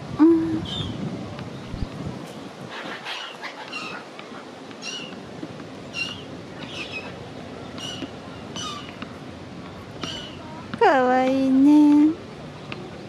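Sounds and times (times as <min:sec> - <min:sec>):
steady background noise: 0:00.0 - 0:13.0
gulls calling: 0:02.7 - 0:10.7.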